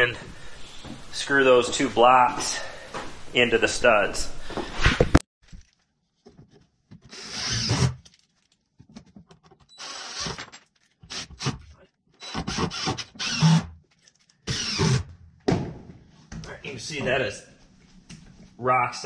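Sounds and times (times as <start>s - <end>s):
cordless drill driving screws: 7.1s - 8.0s, 9.7s - 10.5s, 12.2s - 13.7s, 14.5s - 15.1s.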